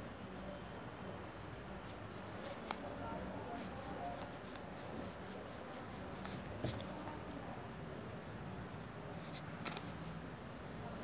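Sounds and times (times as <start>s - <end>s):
pencil scratching on paper: 3.5s - 7.0s
pencil tap: 6.2s - 6.9s.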